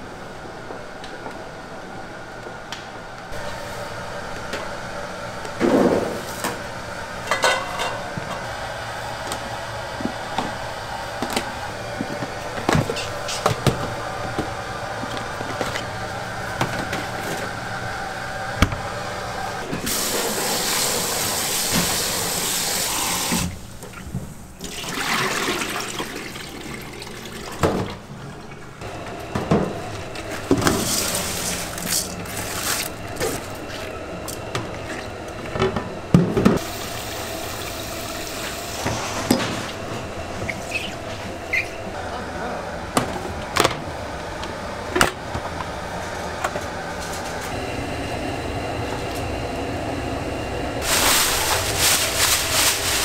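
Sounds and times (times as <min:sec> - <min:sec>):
kitchen utensils clinking: 0:07.2 - 0:08.4
tap water running into container: 0:19.8 - 0:24.0, 0:24.6 - 0:28.6, 0:36.5 - 0:39.0.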